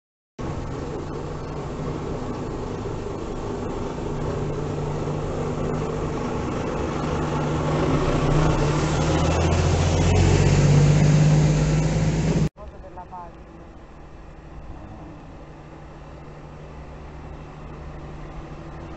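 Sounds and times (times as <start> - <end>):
diesel truck engine running: 0.4 - 12.6.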